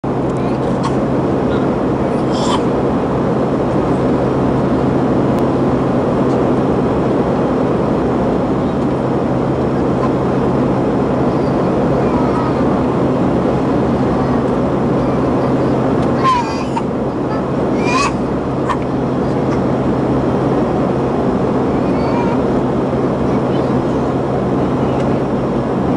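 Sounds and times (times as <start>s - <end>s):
airliner cabin engine drone: 0.0s - 25.9s
constant low hum: 0.0s - 25.9s.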